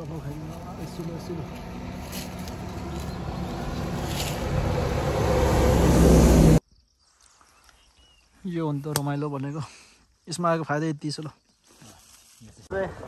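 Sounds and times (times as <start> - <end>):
low rumbling noise: 0.3 - 6.6.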